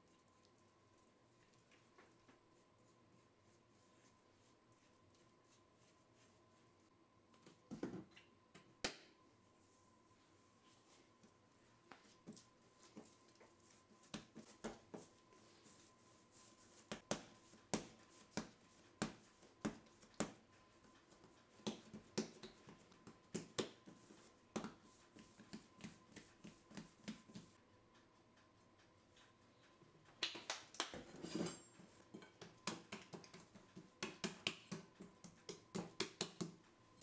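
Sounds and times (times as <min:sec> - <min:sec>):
hands slapping dough on countertop: 0:14.0 - 0:15.1, 0:16.7 - 0:20.5, 0:21.2 - 0:27.6, 0:32.3 - 0:36.6.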